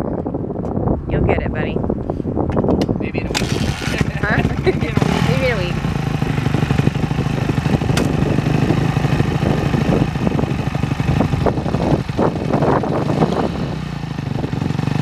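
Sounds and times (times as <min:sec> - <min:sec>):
motorcycle engine idling: 0:03.2 - 0:15.0
sharp click: 0:07.9 - 0:08.2.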